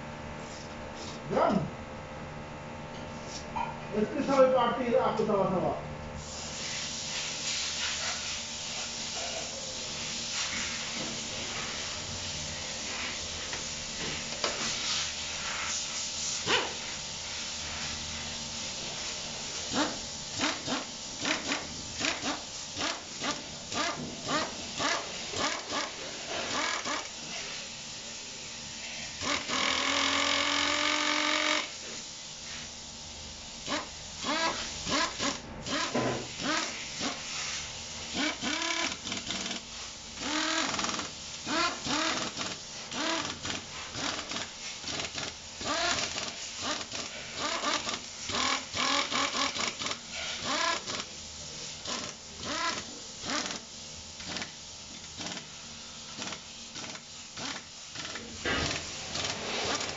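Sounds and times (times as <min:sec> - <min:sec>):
power driver whining: 0:29.2 - 0:31.7, 0:40.2 - 0:51.1.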